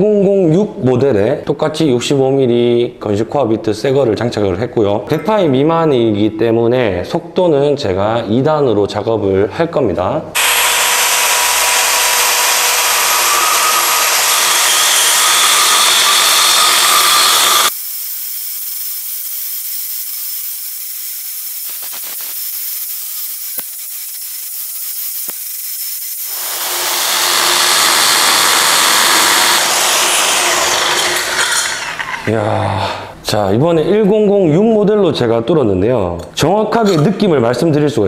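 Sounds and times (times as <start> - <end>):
core drill grinding into concrete: 10.4 - 17.8, 26.1 - 32.5.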